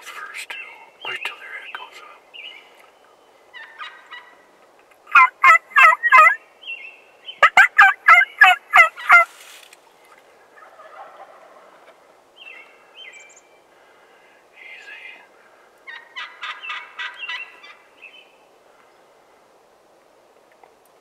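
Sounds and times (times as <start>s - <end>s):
turkeys gobbling: 3.5s - 4.4s, 5.1s - 6.4s, 7.4s - 9.3s, 10.4s - 12.0s, 15.8s - 17.8s.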